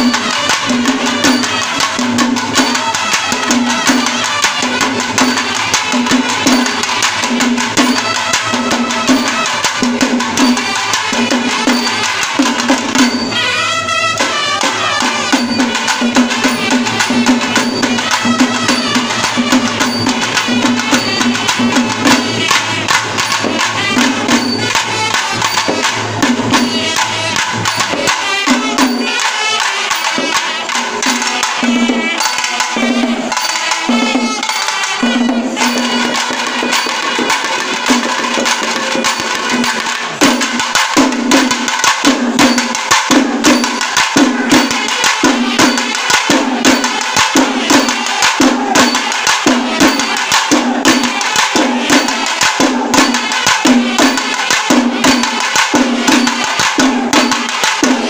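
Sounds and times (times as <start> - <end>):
brass horns and pipes blowing: 0.0 - 7.0, 13.2 - 21.2, 22.0 - 37.8.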